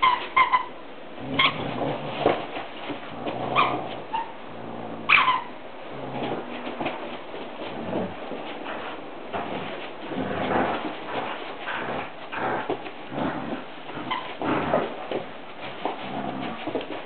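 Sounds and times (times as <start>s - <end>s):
dog squealing: 0.0s - 1.7s, 3.5s - 4.4s, 5.0s - 5.6s, 14.0s - 14.4s
dogs play growling: 0.0s - 17.0s.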